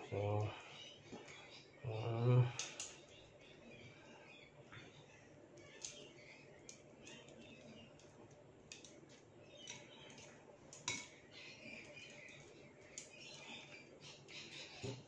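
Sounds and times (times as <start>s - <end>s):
tongs clicking on glass and ceramic: 9.6s - 11.2s.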